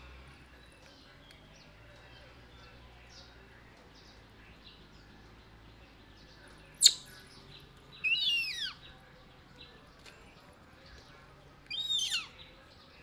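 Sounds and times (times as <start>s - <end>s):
baby monkey squealing call: 8.0s - 8.8s, 11.7s - 12.3s.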